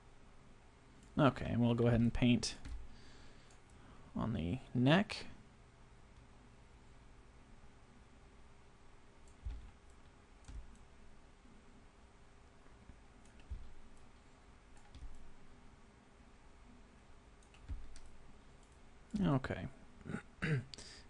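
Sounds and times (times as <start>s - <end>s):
faint room hum: 0.0s - 21.0s
computer mouse clicking: 9.2s - 10.9s, 13.2s - 14.1s, 14.8s - 15.3s, 17.4s - 19.3s.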